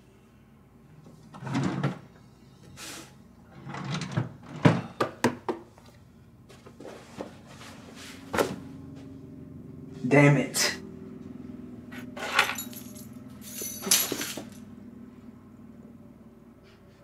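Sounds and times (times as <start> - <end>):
swishes of things being moved: 6.6 - 8.6.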